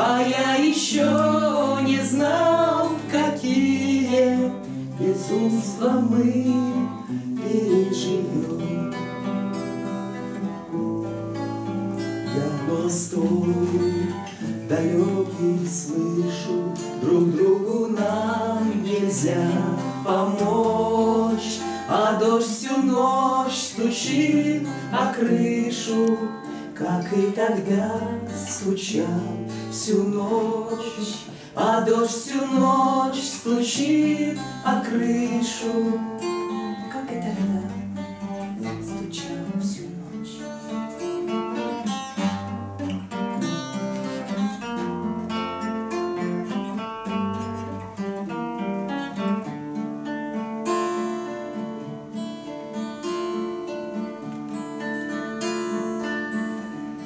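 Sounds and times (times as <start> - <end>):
woman and man singing a duet: 0.0 - 9.3, 12.2 - 38.0, 38.6 - 40.7
acoustic guitars strummed and picked: 0.0 - 57.0.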